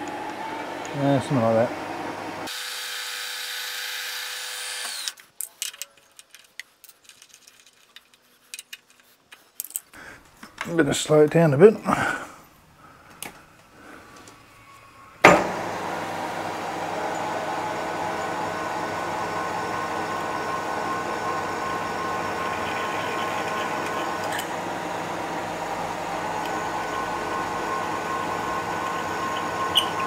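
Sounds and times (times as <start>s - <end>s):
milling machine humming: 0.0s - 2.9s, 14.7s - 30.0s
drill cutting metal tube: 2.5s - 5.2s, 15.2s - 30.0s
machine switch clunk: 15.2s - 15.6s.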